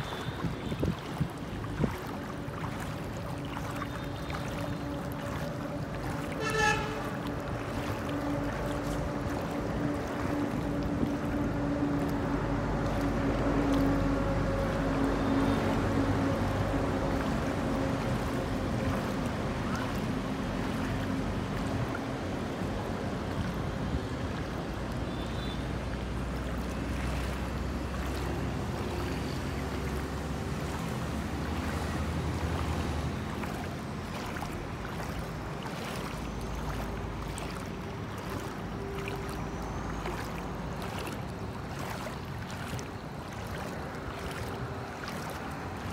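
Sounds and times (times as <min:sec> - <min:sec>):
wind on microphone: 0:00.0 - 0:03.1
low motor-like hum: 0:00.0 - 0:25.0, 0:25.8 - 0:45.9
floodwater moving: 0:00.0 - 0:45.9.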